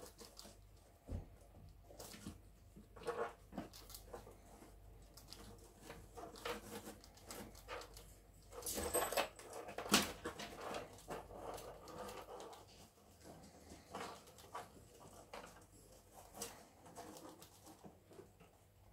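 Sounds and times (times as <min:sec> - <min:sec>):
rats rustling in wood shavings: 0:00.0 - 0:18.9.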